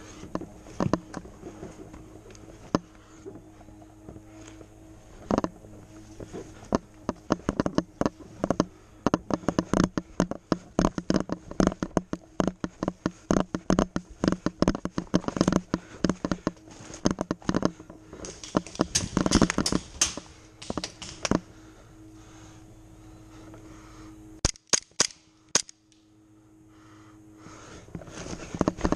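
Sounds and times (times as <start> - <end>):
footsteps crunching undergrowth: 0.0 - 21.5.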